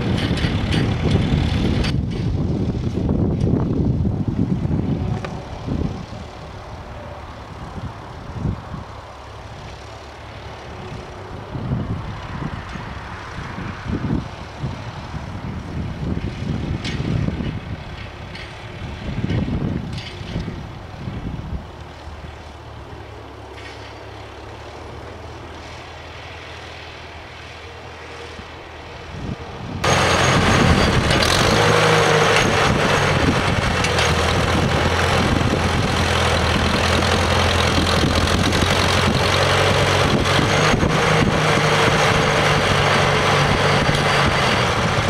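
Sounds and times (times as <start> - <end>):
digger clattering: 0.0 - 3.6, 29.8 - 45.0
tractor engine running: 0.0 - 45.0.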